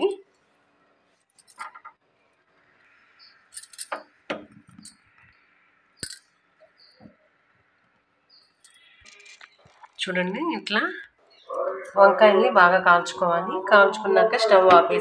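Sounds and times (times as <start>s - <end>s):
metal rod clinking on pan support: 6.0s - 6.2s.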